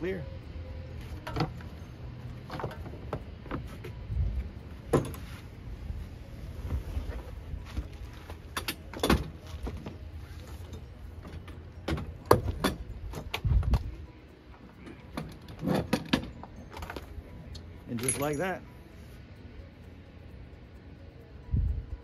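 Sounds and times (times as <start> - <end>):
metallic clacks and knocks: 10.7 - 13.9.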